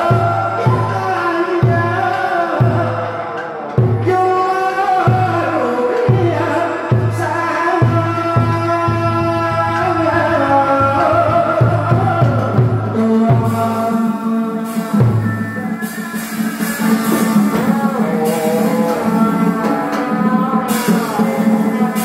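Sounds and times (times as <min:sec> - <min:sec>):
heavy drum strokes: 0:00.0 - 0:22.0
wavering melodic line: 0:14.7 - 0:22.0.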